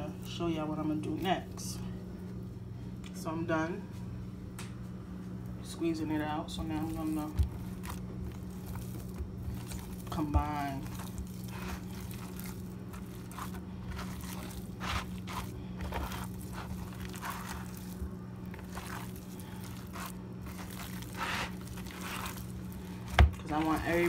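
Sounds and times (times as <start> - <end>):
steady low hum: 0.0 - 24.0
hands squelching raw meat: 6.6 - 24.0.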